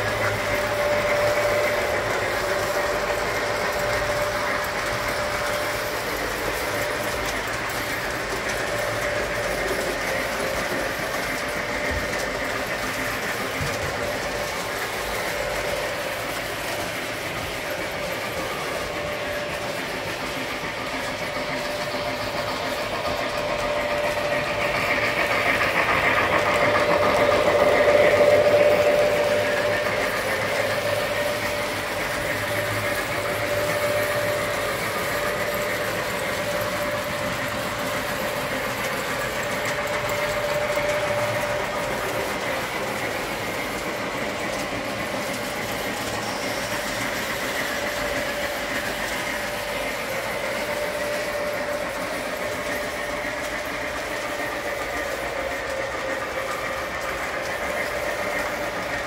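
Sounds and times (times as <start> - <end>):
model train wheels clattering: 0.0 - 59.0
motor hum: 0.0 - 59.0.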